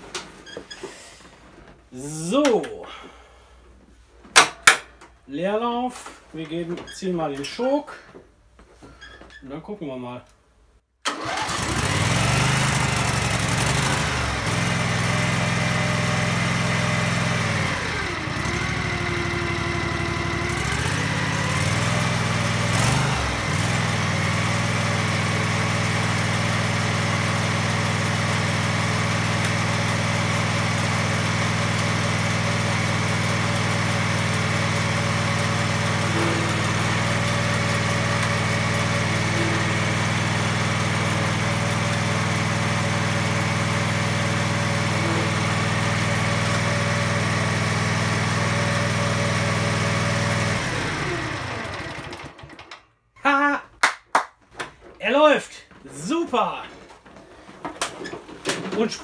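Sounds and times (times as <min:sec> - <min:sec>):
lawn tractor engine running: 0:11.1 - 0:52.8.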